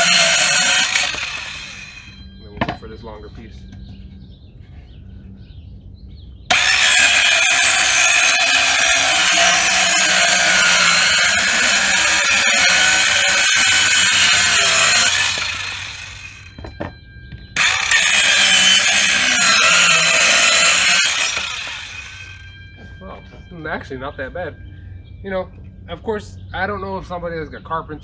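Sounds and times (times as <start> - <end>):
circular saw cutting plywood: 0.0 - 2.2, 6.5 - 16.6, 17.6 - 22.6.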